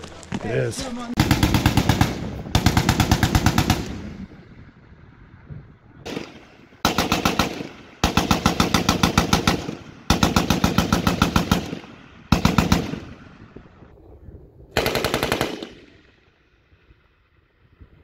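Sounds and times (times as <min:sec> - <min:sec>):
machine gun automatic fire: 0:01.2 - 0:04.3, 0:06.0 - 0:13.3, 0:14.8 - 0:16.0.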